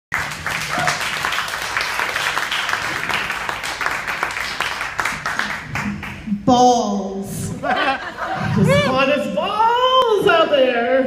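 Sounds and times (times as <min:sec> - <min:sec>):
audience applauding: 0:00.1 - 0:06.2.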